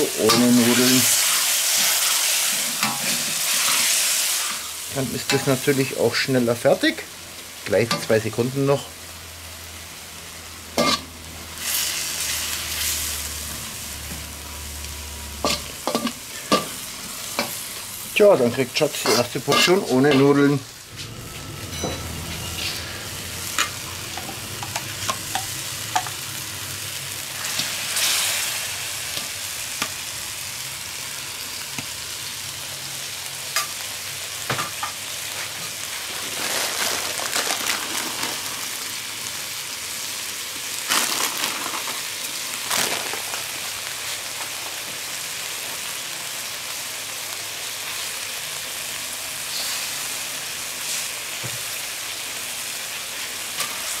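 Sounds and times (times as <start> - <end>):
metal shovel scraping wok: 0.0 - 5.8, 10.8 - 13.3, 15.4 - 26.2, 27.3 - 29.3, 49.5 - 50.2, 53.6 - 54.0
stir-fry sizzling in a wok: 0.0 - 54.0.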